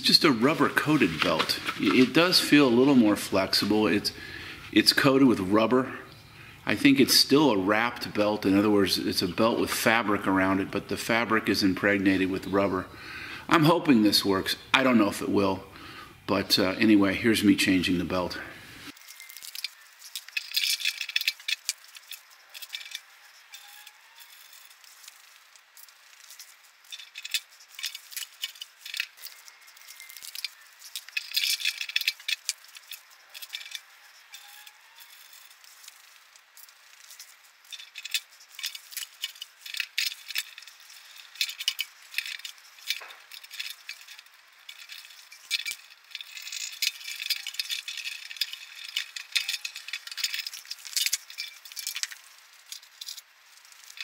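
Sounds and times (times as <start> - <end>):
belt rattling on pulleys: 0.0 - 5.8, 18.9 - 54.0.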